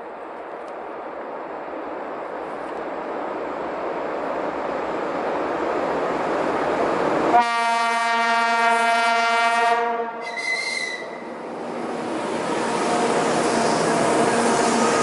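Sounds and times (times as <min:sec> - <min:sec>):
diesel locomotive rumbling: 0:02.2 - 0:15.0
low locomotive horn blast: 0:07.3 - 0:11.2.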